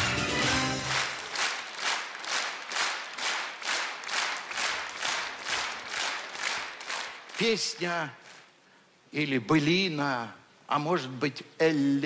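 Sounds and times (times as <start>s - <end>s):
audience clapping in unison: 0.0s - 8.5s.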